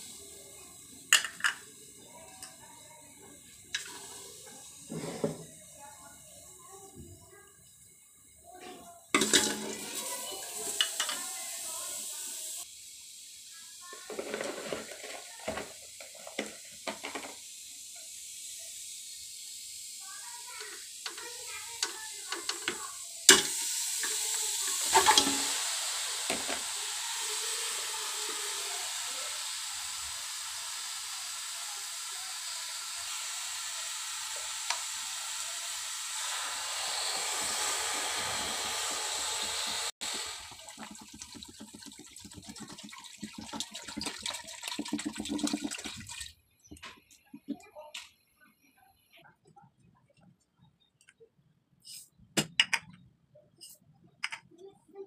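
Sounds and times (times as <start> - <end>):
water running into steel pot: 0.0 - 5.8, 9.2 - 46.4.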